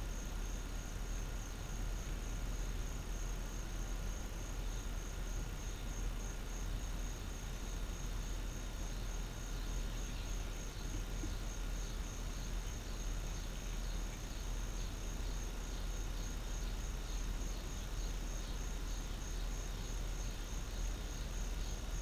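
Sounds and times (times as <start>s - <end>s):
insects trilling: 0.0s - 22.0s
low constant rumble: 0.0s - 22.0s.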